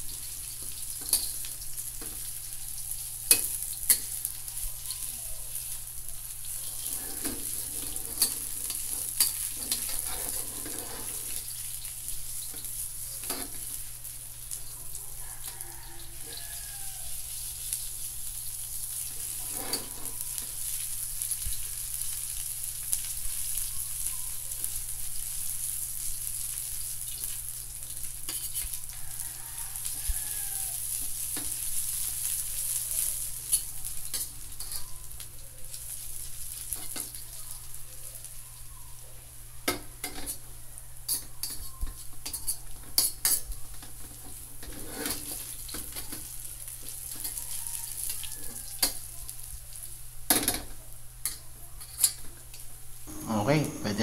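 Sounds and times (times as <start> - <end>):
ginger sizzling in oil: 0.0 - 54.0
metal spatula scraping a wok: 6.7 - 13.8, 19.0 - 20.8, 28.2 - 28.8, 44.6 - 46.0.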